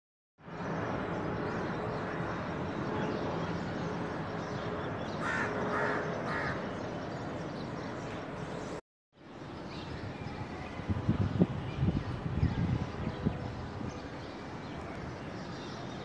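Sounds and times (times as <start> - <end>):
crow cawing: 5.2 - 6.7.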